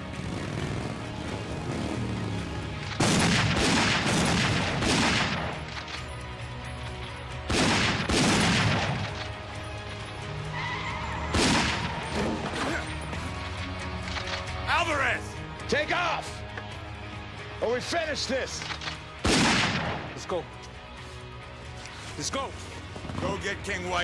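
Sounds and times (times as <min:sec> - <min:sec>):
dramatic film score: 0:00.0 - 0:24.0
gunfire bursts: 0:02.8 - 0:05.7, 0:07.5 - 0:09.2, 0:19.2 - 0:20.1.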